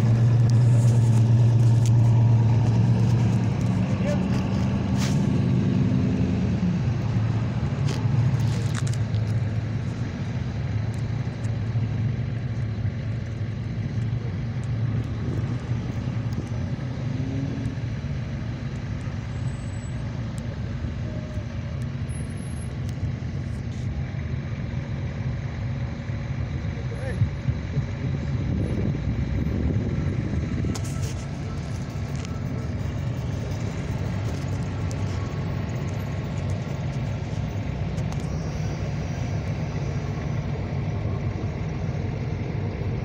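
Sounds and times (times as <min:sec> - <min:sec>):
cars driving past: 0:00.0 - 0:26.5.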